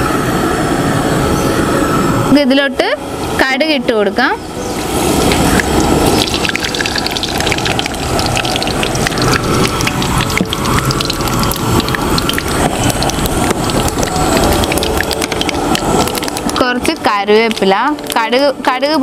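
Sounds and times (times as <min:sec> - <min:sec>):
seeds sizzling and popping in oil: 0:04.7 - 0:18.4.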